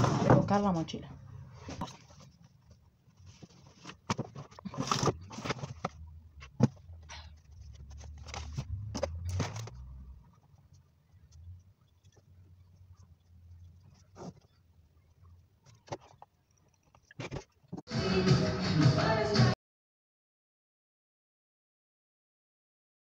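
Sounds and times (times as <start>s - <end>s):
notebook pages flipping: 1.7s - 9.8s
rummaging through a backpack: 1.7s - 9.8s.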